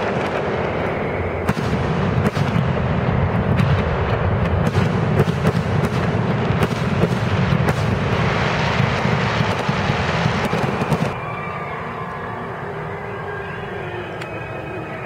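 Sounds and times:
fireworks booming and cracking: 0:00.0 - 0:11.3.

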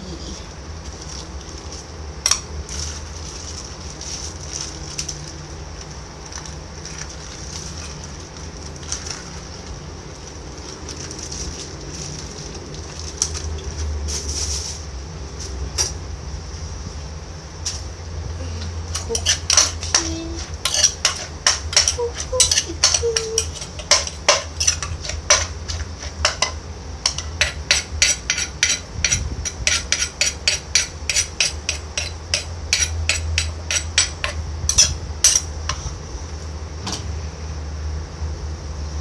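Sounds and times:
pestle knocking clay mortar: 0:19.0 - 0:35.4.

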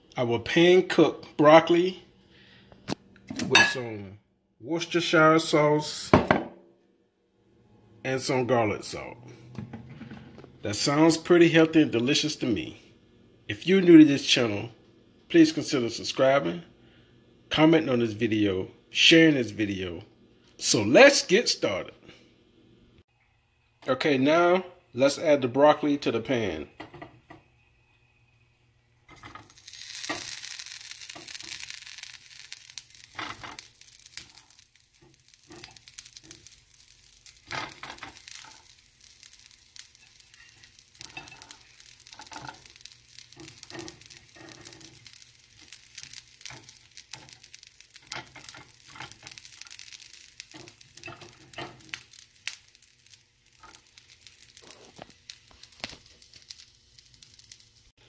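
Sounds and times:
vegetables sizzling in hot oil: 0:29.1 - 0:57.9.

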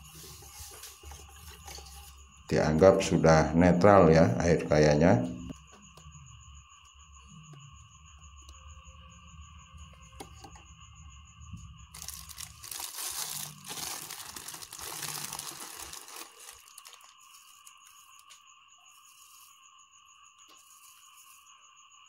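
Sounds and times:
plastic bag crinkling: 0:11.9 - 0:17.7.

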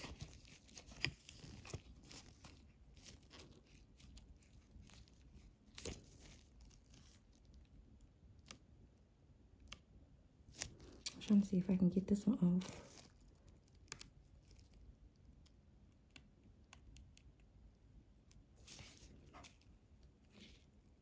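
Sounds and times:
rustling of plastic sticker sheet: 0:00.0 - 0:08.7, 0:10.4 - 0:15.5, 0:18.5 - 0:21.0.

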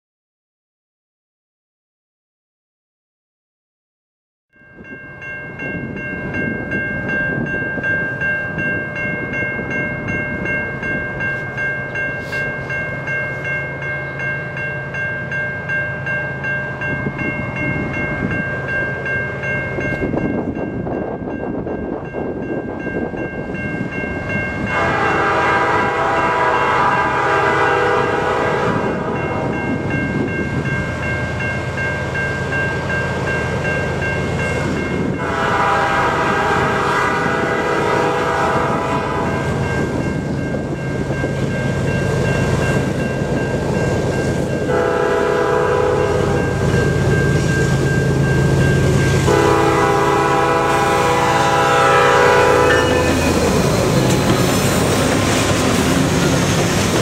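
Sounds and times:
diesel locomotive engine rumbling: 0:04.8 - 0:57.0
train air horn blast: 0:24.7 - 0:29.5, 0:35.2 - 0:39.6, 0:44.7 - 0:46.5, 0:49.3 - 0:53.8.

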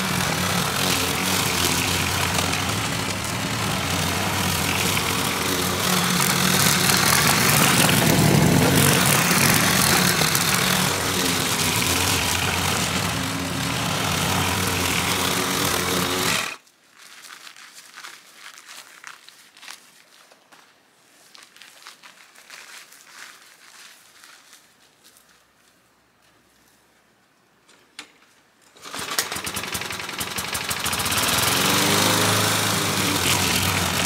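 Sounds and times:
lawn mower cutting grass: 0:00.0 - 0:16.6, 0:28.8 - 0:34.0.

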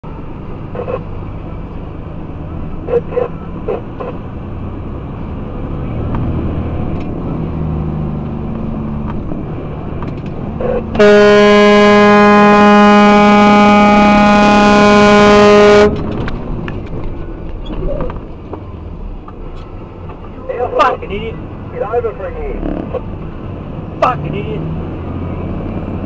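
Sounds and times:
truck engine running: 0:00.0 - 0:23.9
truck horn blast: 0:10.6 - 0:16.1.

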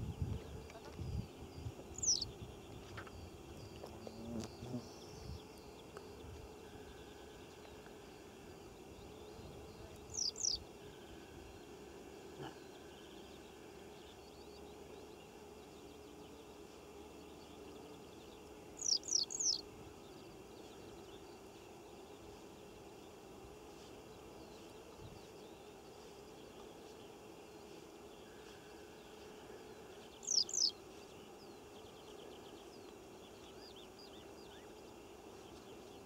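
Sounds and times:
open-field background noise: 0:00.0 - 0:36.0
bird chirps: 0:00.8 - 0:05.4, 0:09.3 - 0:10.6, 0:18.8 - 0:19.6, 0:30.1 - 0:30.8.

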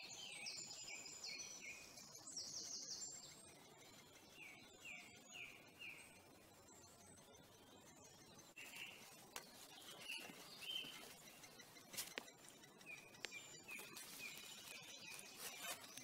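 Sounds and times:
woodpecker nestlings chirping: 0:08.1 - 0:16.0.

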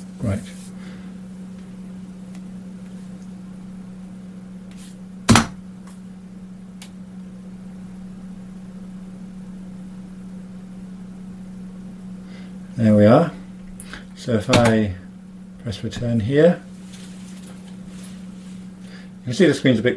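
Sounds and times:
low hum: 0:00.0 - 0:19.9.

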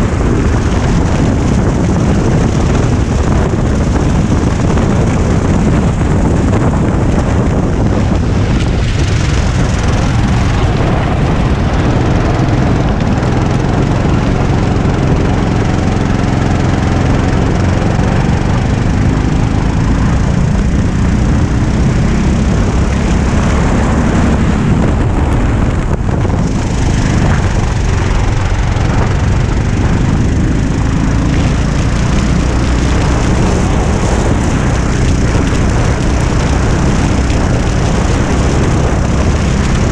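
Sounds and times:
go-kart engine running hard: 0:00.0 - 0:39.9
wind rushing over microphone: 0:00.0 - 0:39.9.

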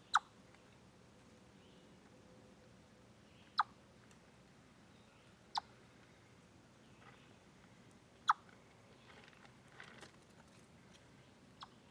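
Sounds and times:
chipmunk chip call: 0:00.0 - 0:00.3, 0:03.4 - 0:03.8, 0:08.2 - 0:08.5, 0:11.6 - 0:11.9
faint steady hiss: 0:00.0 - 0:11.9.

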